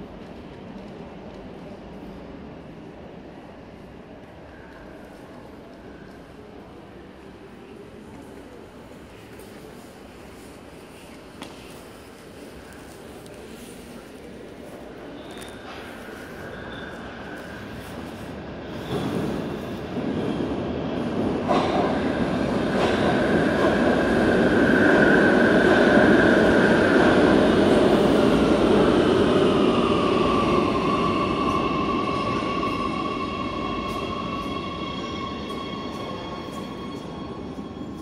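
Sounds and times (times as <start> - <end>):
metro train passing: 0.0 - 38.0.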